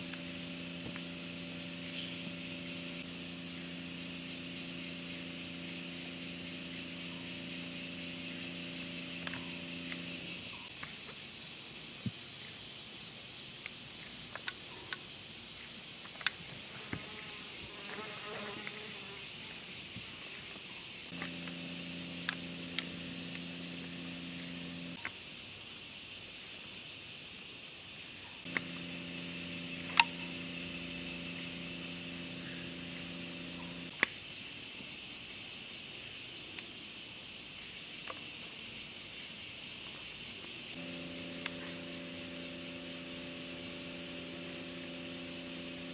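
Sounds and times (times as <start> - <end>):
low machine hum: 0.0 - 10.7, 21.1 - 25.0, 28.5 - 33.9, 40.8 - 45.9
high-pitched insect chorus: 0.0 - 45.9
sharp clicks: 29.8 - 30.4.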